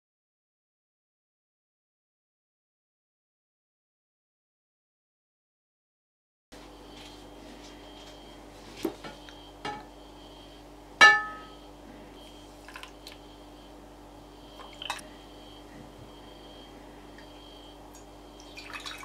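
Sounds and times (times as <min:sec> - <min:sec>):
steady low hum: 0:06.5 - 0:19.0
glass clinking on ceramic plate: 0:11.0 - 0:11.5.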